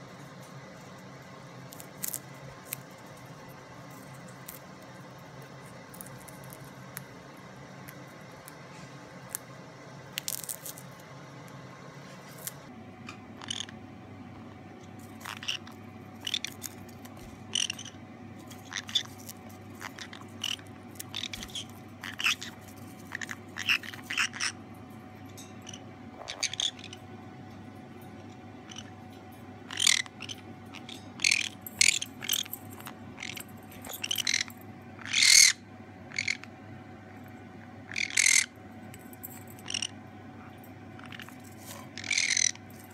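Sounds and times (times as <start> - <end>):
popcorn crunches and pecks: 1.7 - 2.9, 10.1 - 10.9
parrots chirping softly: 12.2 - 13.8, 14.8 - 42.9.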